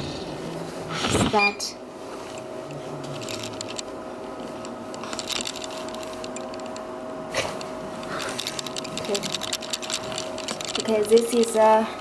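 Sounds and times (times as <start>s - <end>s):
handling clicks and rustling: 3.0s - 3.9s, 4.5s - 6.9s, 7.6s - 11.7s.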